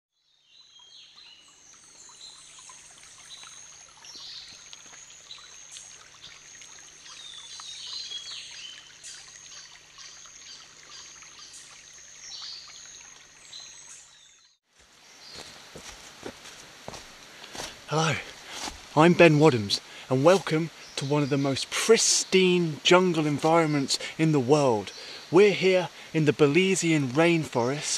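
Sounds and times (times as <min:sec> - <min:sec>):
stream water trickling over stones: 0:00.3 - 0:27.9
birds chirping: 0:00.6 - 0:27.9.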